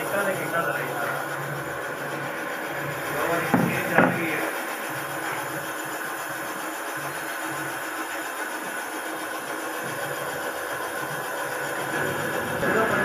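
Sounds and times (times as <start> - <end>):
machine throbbing: 11.2 - 13.0.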